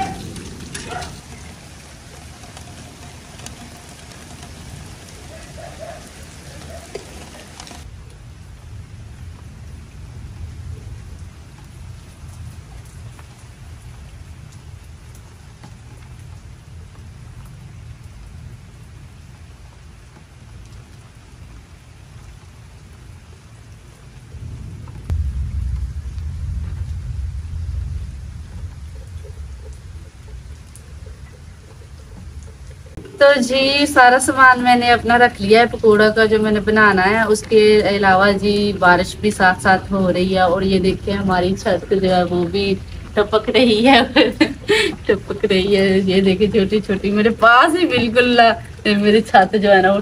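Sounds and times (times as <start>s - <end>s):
hiss of splashing water: 0.0s - 7.9s, 43.8s - 45.2s
low rumble of thunder: 0.0s - 50.0s
steady rain: 0.0s - 50.0s.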